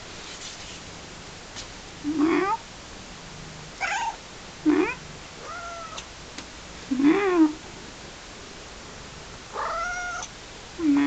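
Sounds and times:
cat meowing: 3.8s - 6.1s, 9.6s - 10.3s.

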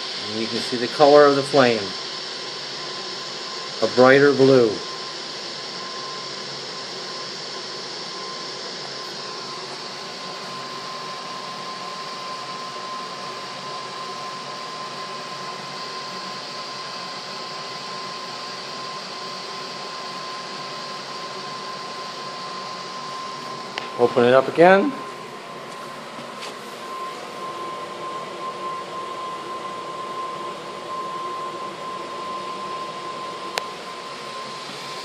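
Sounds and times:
gas burner hissing: 0.0s - 35.0s
thin whistle-like tone: 26.8s - 35.0s.

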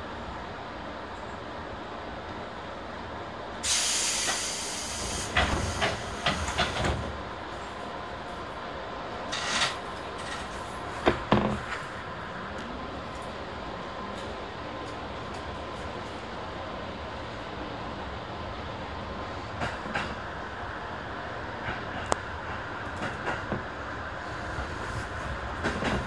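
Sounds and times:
compressed air hissing: 3.6s - 6.8s
train equipment clunks and knocks: 4.2s - 8.6s, 9.2s - 16.5s, 19.5s - 20.3s, 21.6s - 26.0s.

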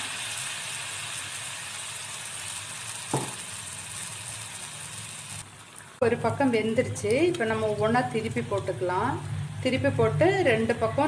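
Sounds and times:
oil sizzling while deep-frying: 0.0s - 9.6s
knock: 3.1s - 3.4s.

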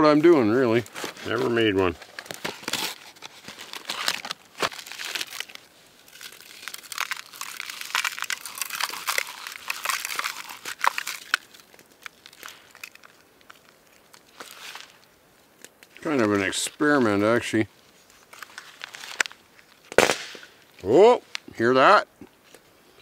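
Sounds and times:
plastic wrapper crinkling: 0.0s - 20.0s
granola bars crunching by hand: 0.2s - 16.6s.

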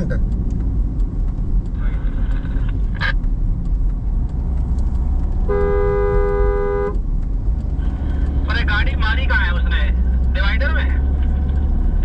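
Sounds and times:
car driving on highway: 0.0s - 12.0s
two-tone car horn blast: 5.5s - 7.0s.

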